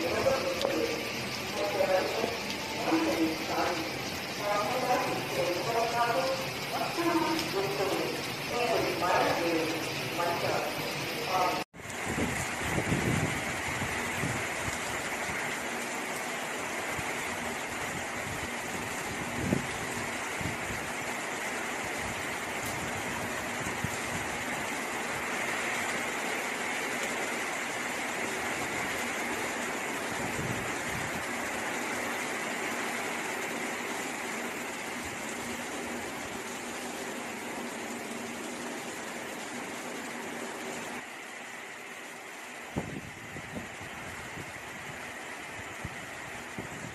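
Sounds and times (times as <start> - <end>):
heavy rain pouring: 0.0 - 46.9
wind gusts on microphone: 11.8 - 15.5, 16.9 - 21.1, 21.8 - 24.7, 30.1 - 31.4, 42.7 - 46.9.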